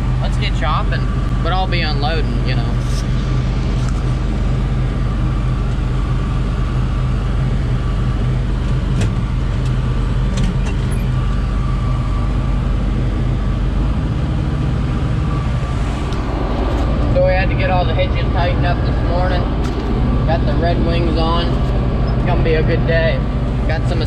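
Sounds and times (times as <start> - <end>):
thin steady whine: 0.0 - 24.0
tractor engine running: 0.0 - 24.0.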